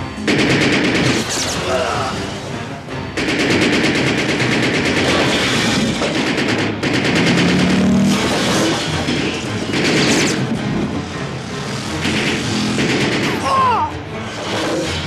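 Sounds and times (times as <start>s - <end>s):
automatic gunfire: 0.2s - 1.7s, 3.2s - 10.4s, 12.0s - 13.5s.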